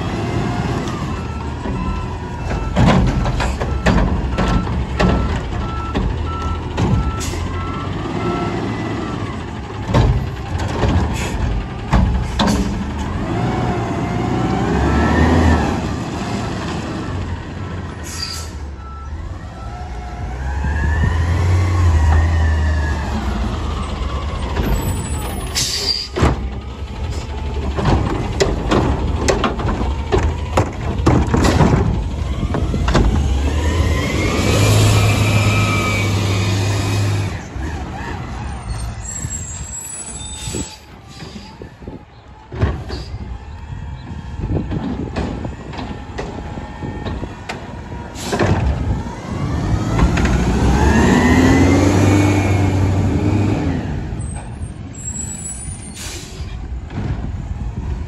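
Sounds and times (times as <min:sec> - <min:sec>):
garbage truck engine revving: 0:00.0 - 0:18.1, 0:19.1 - 0:25.6, 0:26.3 - 0:39.8, 0:42.8 - 0:58.0
metal clanks and bangs: 0:01.5 - 0:07.6, 0:09.6 - 0:13.2, 0:24.4 - 0:33.4.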